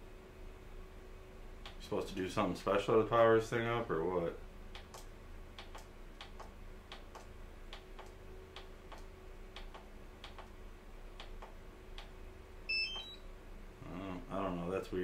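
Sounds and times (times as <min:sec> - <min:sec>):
steady low hum: 0:00.0 - 0:15.0
faint ticking clicks: 0:04.7 - 0:10.6, 0:11.2 - 0:12.1
high electronic beeps: 0:12.7 - 0:13.2.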